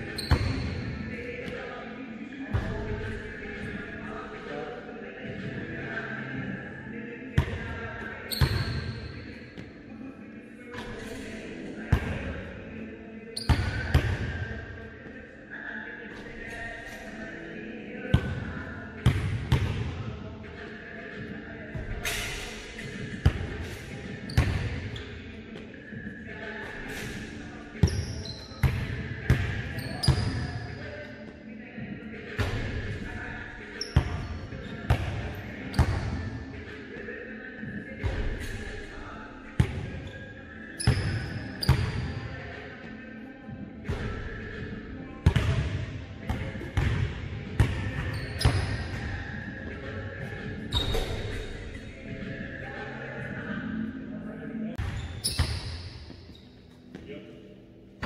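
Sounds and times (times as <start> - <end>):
sneaker squeaks: 0.0 - 1.6, 7.4 - 9.8, 13.2 - 14.1, 22.0 - 31.1, 32.4 - 36.3, 39.6 - 42.4, 47.8 - 49.3, 50.5 - 51.9, 54.8 - 57.3
basketball bouncing on gym floor: 45.2 - 49.0.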